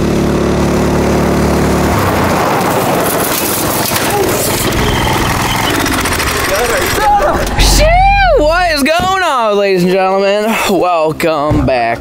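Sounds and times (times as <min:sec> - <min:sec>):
go-kart engine running: 0:00.0 - 0:08.8
rough noisy rush: 0:00.0 - 0:08.9.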